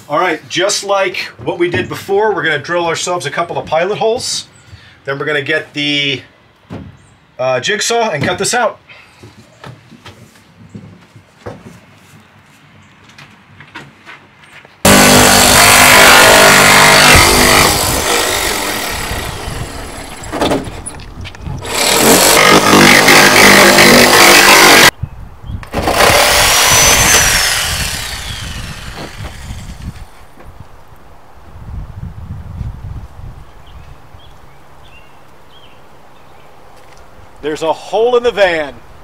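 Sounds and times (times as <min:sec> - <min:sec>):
jigsaw cutting sheet metal: 0:14.9 - 0:20.8, 0:21.6 - 0:24.9, 0:25.7 - 0:30.2.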